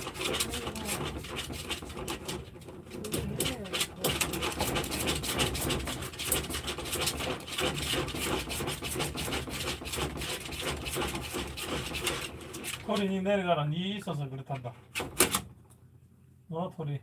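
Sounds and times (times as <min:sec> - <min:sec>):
dog claws scratching plastic: 0:00.0 - 0:13.3.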